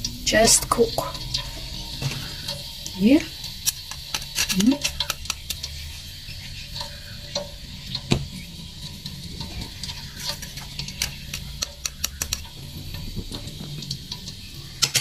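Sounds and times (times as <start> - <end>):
low steady hum: 0.0 - 14.8
hot oil sizzling and popping: 0.0 - 15.0.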